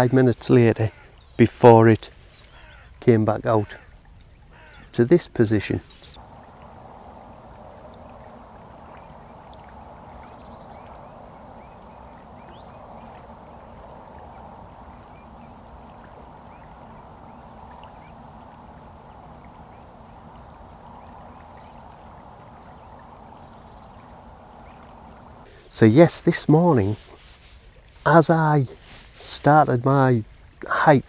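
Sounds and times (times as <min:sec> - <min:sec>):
small birds chirping: 0:00.0 - 0:27.5
river water rushing: 0:05.7 - 0:29.4.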